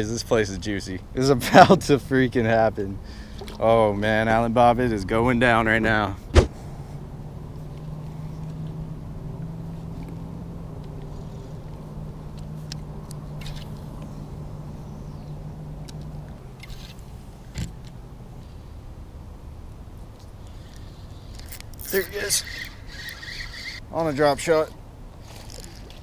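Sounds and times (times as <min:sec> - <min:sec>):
low motor hum: 0:03.2 - 0:26.0
sharp knock: 0:06.3 - 0:06.6.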